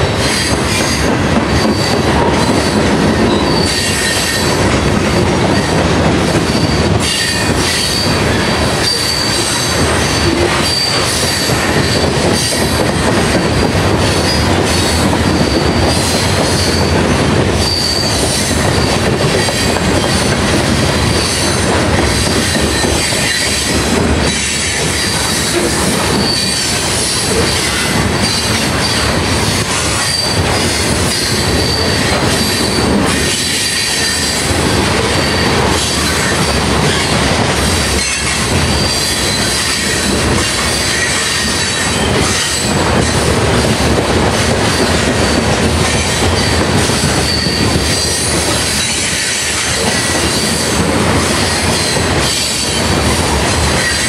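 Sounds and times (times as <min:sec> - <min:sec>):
high wheel squeal: 0:00.2 - 0:04.6, 0:06.4 - 0:17.0, 0:17.6 - 0:43.2, 0:44.4 - 0:54.0.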